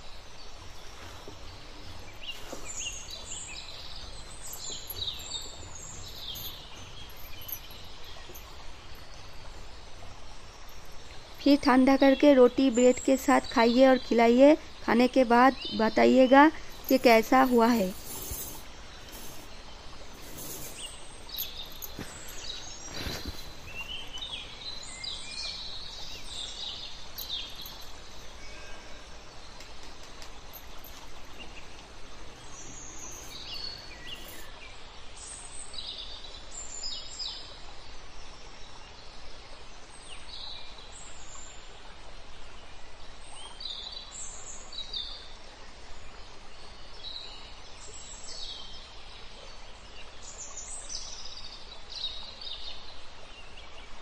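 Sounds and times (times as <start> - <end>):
small birds chirping: 0.0 - 36.1
steady background hiss: 0.0 - 54.0.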